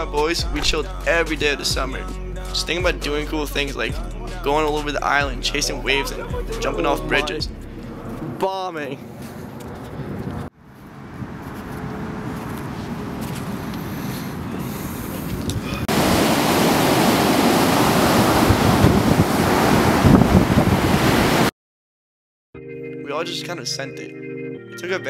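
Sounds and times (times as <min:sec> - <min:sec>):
ocean surf breaking: 0:11.0 - 0:21.5
wind on microphone: 0:11.2 - 0:21.5.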